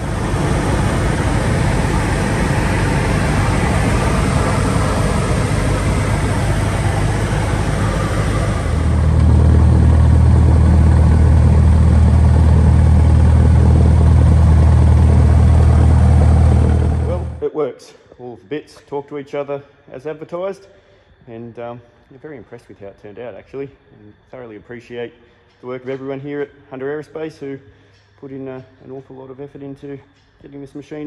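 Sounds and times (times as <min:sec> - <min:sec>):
light aircraft engine in cabin: 0:00.0 - 0:17.4.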